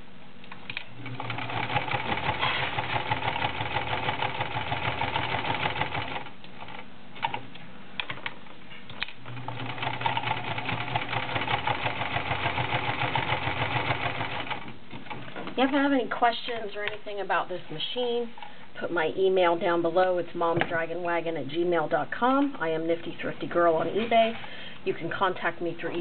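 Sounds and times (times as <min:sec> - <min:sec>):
sewing machine stitching: 0:01.0 - 0:07.4, 0:09.3 - 0:15.2.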